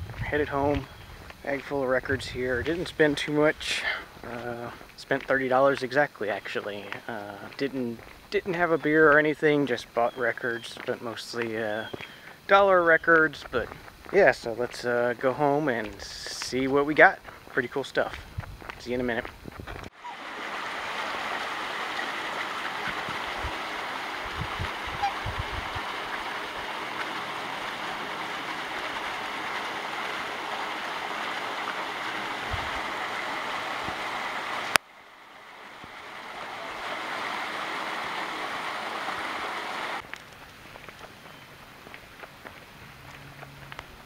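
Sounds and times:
water splashing into pond: 19.9s - 41.0s.

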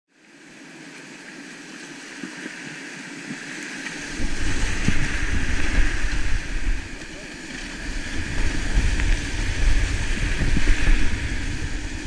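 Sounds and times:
paddle strokes splashing: 0.3s - 12.0s
whitewater rushing: 0.8s - 12.0s
deep rumble: 4.0s - 12.0s.

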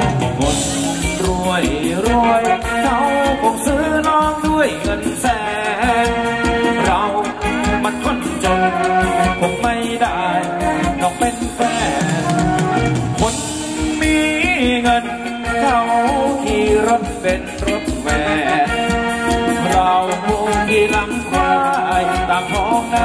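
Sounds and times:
live band playing dance music: 0.0s - 23.0s
steady drum beat: 0.0s - 23.0s
pitch-bending melody: 5.2s - 23.0s.

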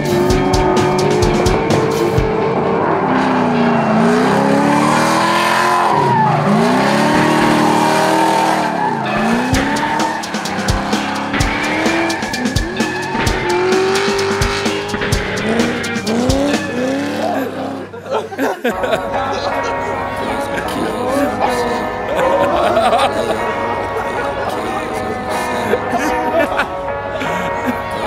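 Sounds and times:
car engine revving: 0.0s - 18.0s
music: 0.0s - 28.0s
tyres squealing: 0.4s - 18.6s.

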